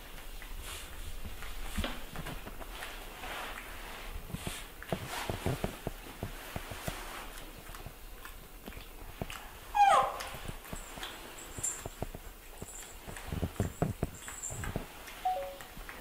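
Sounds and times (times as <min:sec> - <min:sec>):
soft taps and rustles: 0:00.0 - 0:16.0
young animal squealing: 0:09.7 - 0:10.3.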